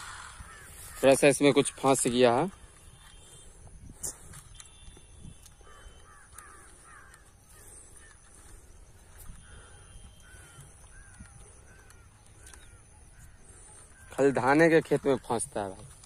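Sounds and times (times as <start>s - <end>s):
faint bird calls: 0.0s - 16.0s
light clicks of drone handling: 3.9s - 7.4s, 10.2s - 13.3s.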